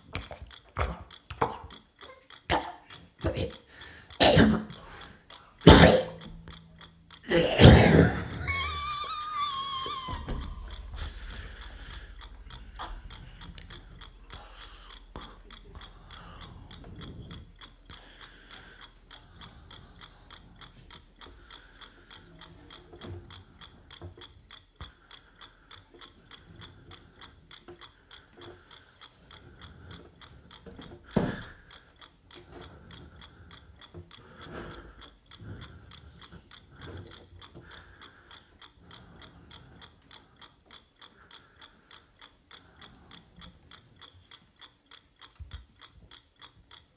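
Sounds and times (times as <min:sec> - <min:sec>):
mouth clicks into a microphone: 0:00.0 - 0:04.8.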